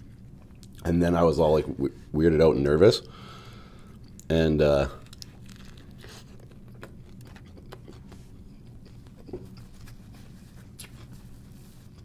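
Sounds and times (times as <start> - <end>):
low steady hum: 0.0 - 12.0
faint chewing: 3.5 - 4.3, 4.9 - 12.0.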